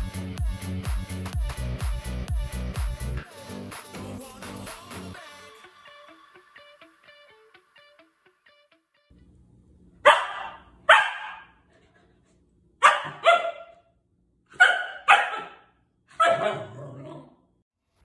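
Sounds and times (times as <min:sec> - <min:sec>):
dog barking: 0:10.0 - 0:11.6, 0:12.8 - 0:13.9, 0:14.5 - 0:17.4.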